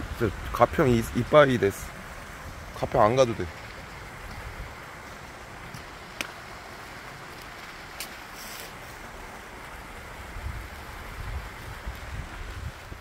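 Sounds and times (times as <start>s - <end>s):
wind buffeting microphone: 0.0s - 6.0s, 10.0s - 13.0s
fountain splashing into pond: 0.0s - 13.0s.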